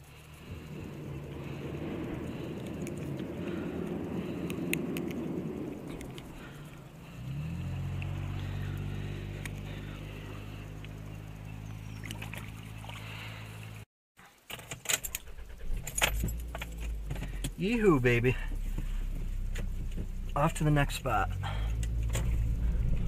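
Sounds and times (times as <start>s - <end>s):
engine humming: 0.0s - 13.8s, 15.1s - 23.0s
small clicks: 4.4s - 5.2s
keys jangling in ignition: 14.5s - 17.6s.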